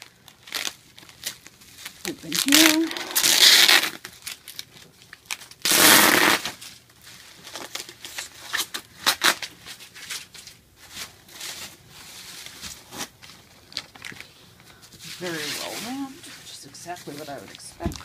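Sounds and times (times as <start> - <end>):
packing tape ripping: 0.0 - 10.4
bubble wrap crinkling: 0.0 - 18.0.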